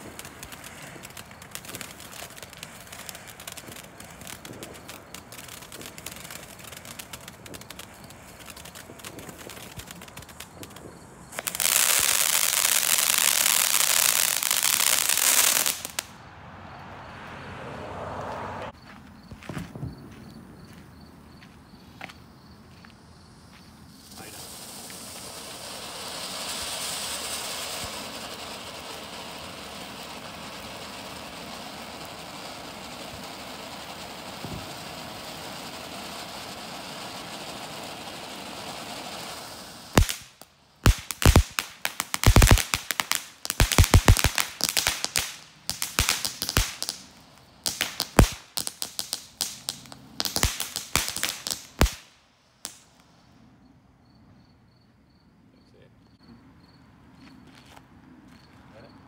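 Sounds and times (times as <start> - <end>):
firework crackling pops: 0.0 - 16.2, 19.3 - 20.8, 22.8 - 53.2
firework hissing sparks: 0.0 - 16.2, 23.7 - 53.2.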